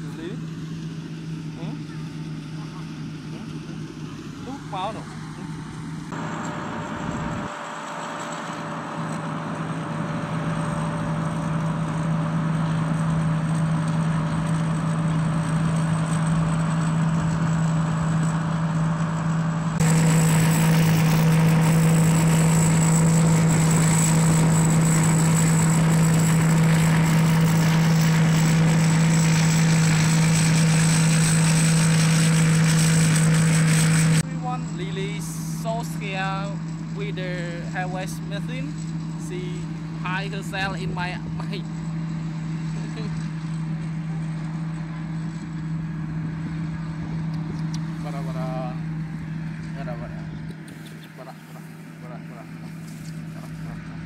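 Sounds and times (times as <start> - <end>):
combine harvester engine drone: 0.0 - 54.0
thin high whine: 19.8 - 46.0.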